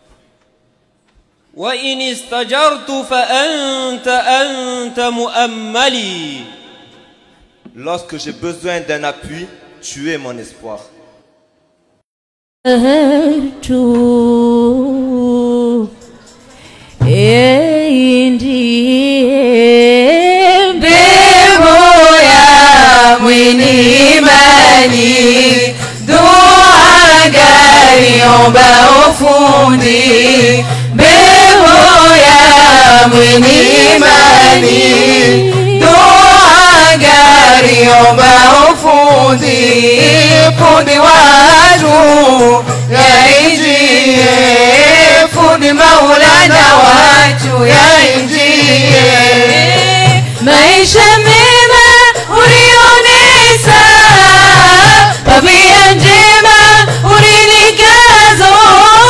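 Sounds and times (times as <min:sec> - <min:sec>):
women singing into microphones: 0:12.7 - 0:59.0.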